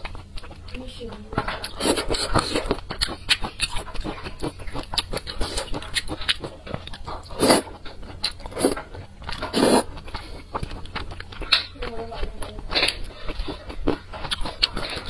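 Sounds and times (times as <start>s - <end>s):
wet chewing: 0.0s - 15.0s
slurping noodles: 1.7s - 10.8s.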